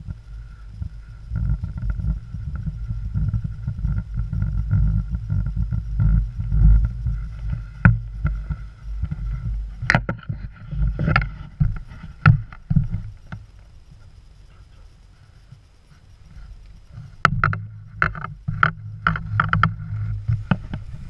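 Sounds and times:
wind rumble on camera: 0:00.0 - 0:21.0.

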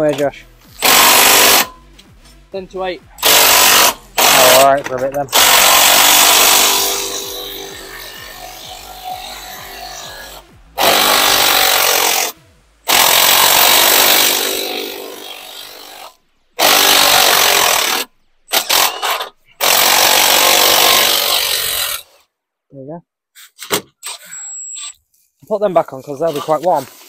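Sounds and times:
power tool running in bursts: 0:00.8 - 0:01.7, 0:03.2 - 0:04.7, 0:05.3 - 0:12.3, 0:12.9 - 0:22.0.

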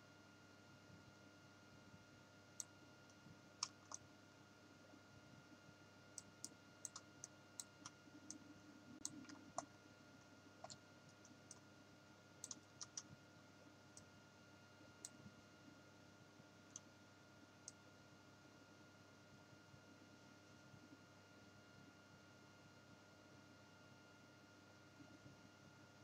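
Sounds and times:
low electrical hum: 0:00.0 - 0:26.0
computer mouse clicks: 0:02.6 - 0:04.0, 0:06.2 - 0:08.4, 0:09.0 - 0:09.7, 0:10.6 - 0:11.7, 0:12.4 - 0:13.1, 0:15.0 - 0:15.3, 0:16.7 - 0:16.9.

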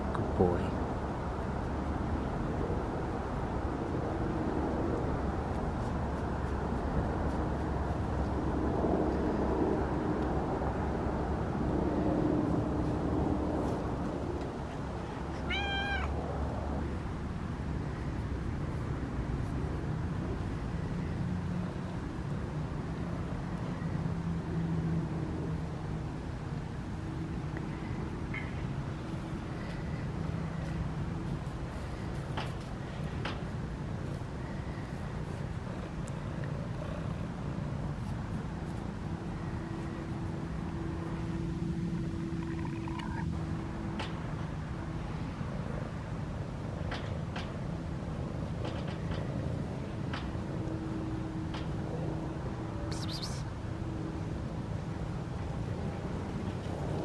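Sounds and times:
cat meowing: 0:15.4 - 0:16.2, 0:52.9 - 0:53.4.

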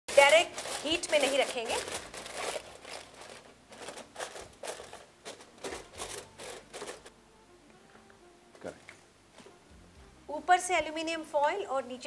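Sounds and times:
aluminium foil crinkling: 0:00.1 - 0:07.1.

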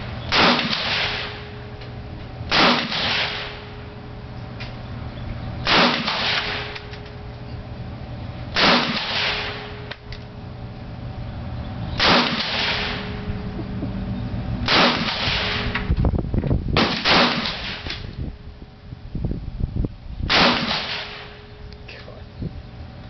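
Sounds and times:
rifle shots echoing: 0:00.3 - 0:01.6, 0:02.5 - 0:03.9, 0:05.6 - 0:07.0, 0:08.5 - 0:09.9, 0:12.0 - 0:13.2, 0:14.6 - 0:15.8, 0:16.8 - 0:18.0, 0:20.3 - 0:21.5.

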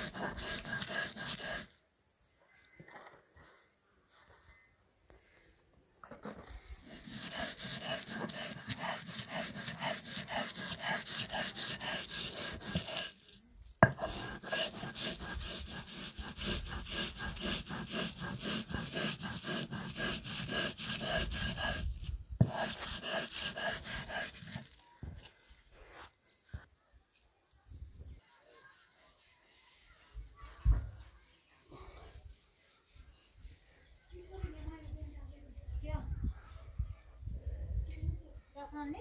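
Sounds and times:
stone scraping on stone: 0:00.0 - 0:01.8, 0:06.2 - 0:26.2.

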